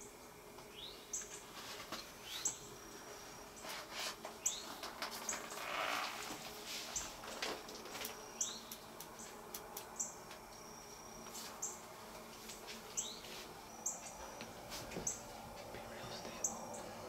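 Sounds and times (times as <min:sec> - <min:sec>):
thin high buzz: 0:00.0 - 0:17.0.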